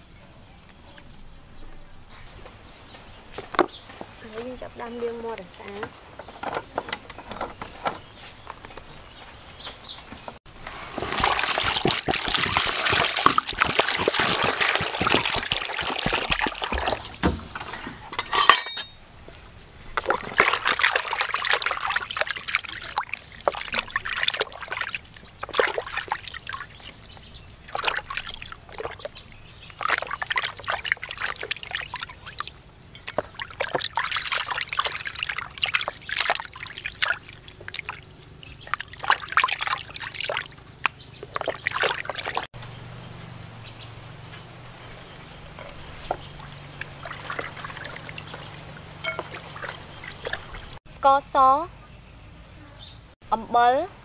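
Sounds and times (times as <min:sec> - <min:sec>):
water pouring into plastic basin: 0:10.5 - 0:18.0, 0:20.0 - 0:42.5, 0:46.4 - 0:50.8
hands sloshing in water: 0:10.6 - 0:18.2, 0:19.9 - 0:42.5, 0:46.1 - 0:50.8.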